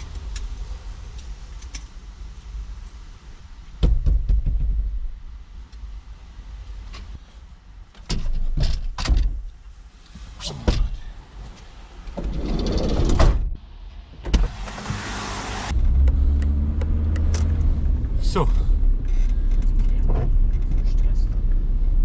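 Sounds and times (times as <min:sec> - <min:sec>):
knocks and rustling: 0:03.7 - 0:05.2, 0:07.9 - 0:09.6.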